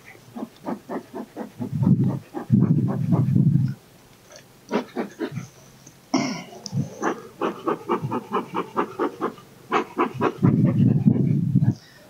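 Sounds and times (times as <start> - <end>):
rapid rhythmic panting: 0.0 - 3.8, 4.7 - 5.6, 6.7 - 11.5.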